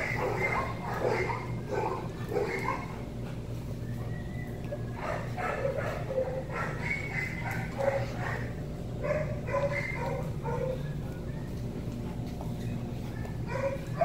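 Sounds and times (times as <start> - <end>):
dog whining and yipping: 4.0 - 11.6.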